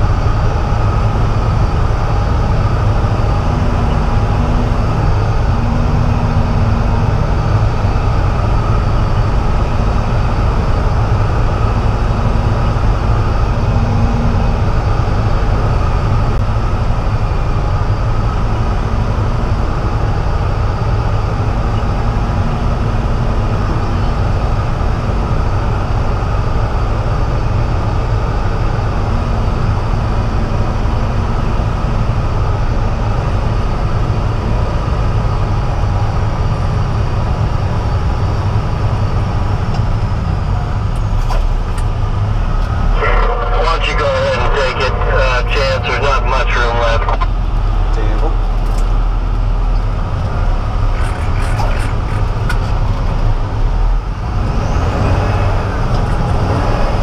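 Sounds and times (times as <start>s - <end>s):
truck diesel engine drone: 0.0s - 57.0s.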